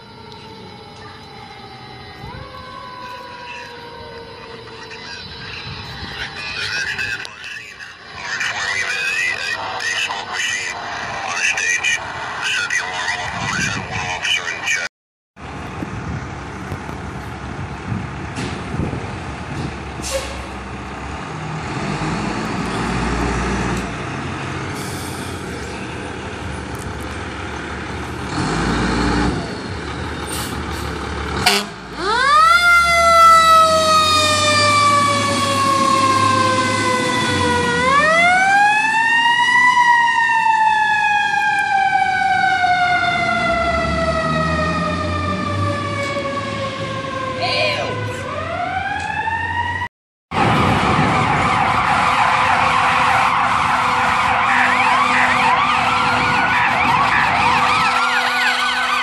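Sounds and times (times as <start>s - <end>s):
fire engine siren wailing: 0.0s - 16.5s, 18.7s - 59.0s
fire engine running: 0.0s - 59.0s.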